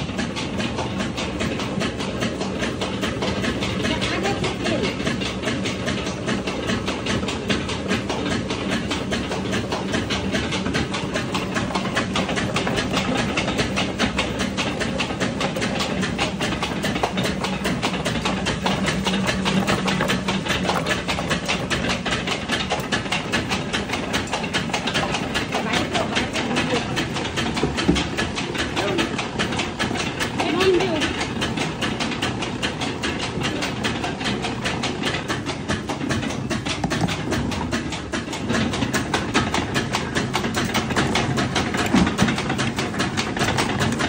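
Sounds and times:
oil mill machinery clattering: 0.0 - 44.0.

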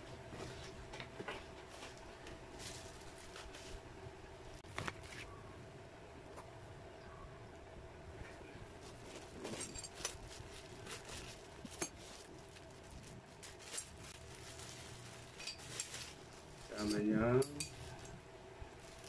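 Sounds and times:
faint steady hum: 0.0 - 19.0
plastic bags crinkling: 1.7 - 3.8, 8.6 - 19.0
metal tools clinking: 9.3 - 10.4, 15.3 - 16.1, 16.7 - 18.1.

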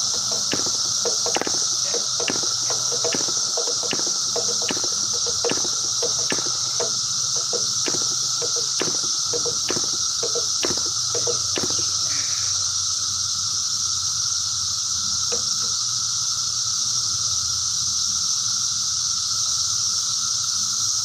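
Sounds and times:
high-pitched hissing drone: 0.0 - 21.0
short clicks: 0.3 - 12.2.

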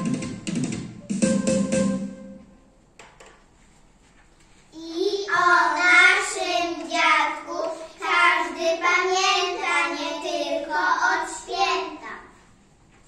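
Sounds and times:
young children singing: 4.8 - 12.3.

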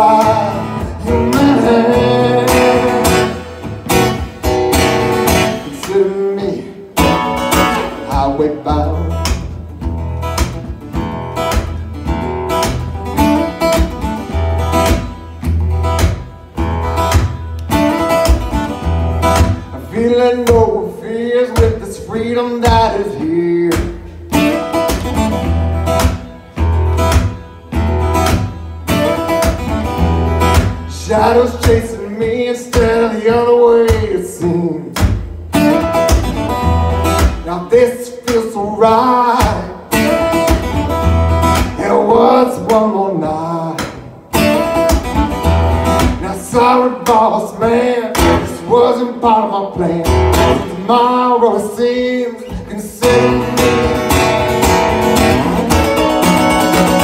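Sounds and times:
person singing: 0.0 - 3.6, 5.5 - 9.3, 41.7 - 44.0, 46.2 - 54.3
acoustic guitar strumming: 0.0 - 57.0.

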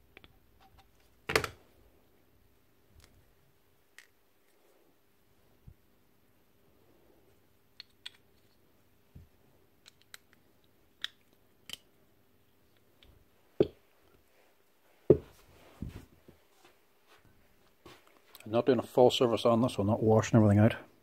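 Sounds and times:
parts knocking on workbench: 15.1 - 15.3.

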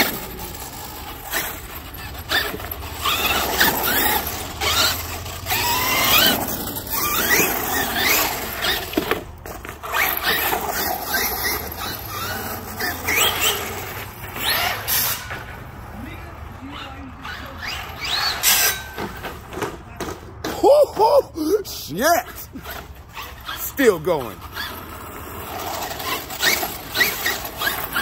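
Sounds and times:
electric motor whining: 0.0 - 9.1, 9.8 - 15.2, 25.7 - 28.0
tyres rushing on asphalt: 0.0 - 28.0.

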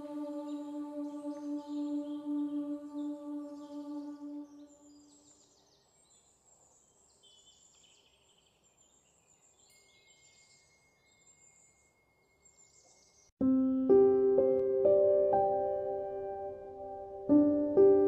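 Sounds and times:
bird chirps and trills: 0.0 - 13.3
piano music: 13.4 - 18.0.

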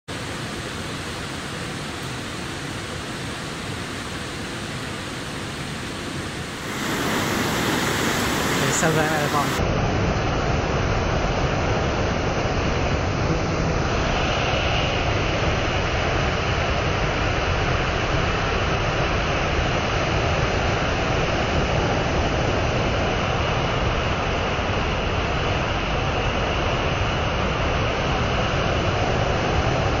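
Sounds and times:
river rapids roaring: 0.1 - 9.7.

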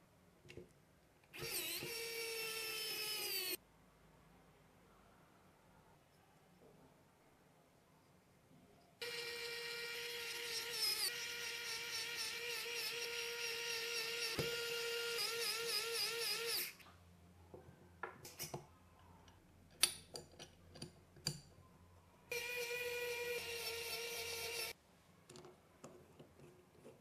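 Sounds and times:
electric screwdriver whining: 1.4 - 3.6, 9.0 - 16.7, 22.3 - 24.8
small parts clicking and tapping: 18.2 - 21.5.

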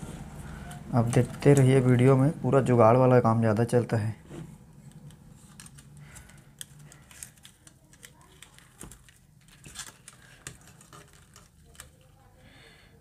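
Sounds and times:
wires clicking and rustling: 0.6 - 2.1, 4.7 - 12.4.

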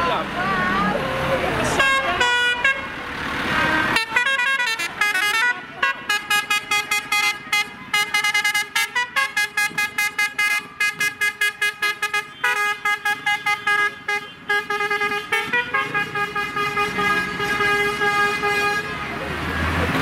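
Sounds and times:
engines running: 0.0 - 20.0
vehicle horn short blasts: 3.7 - 18.9.

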